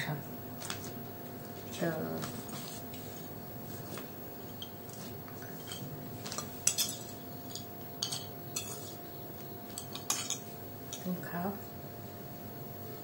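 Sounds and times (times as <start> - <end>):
plates and cutlery clinking: 4.5 - 9.0, 9.7 - 11.1.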